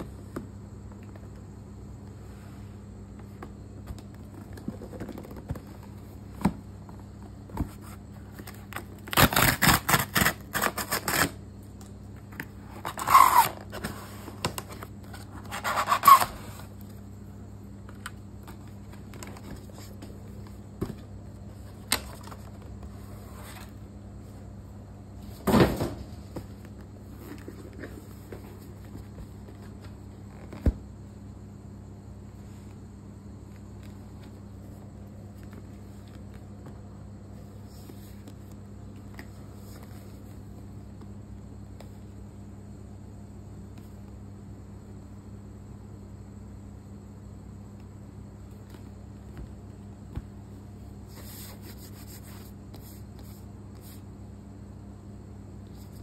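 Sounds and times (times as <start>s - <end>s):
cardboard ripping: 9.0s - 11.4s
cardboard sliding on cardboard: 51.1s - 54.0s.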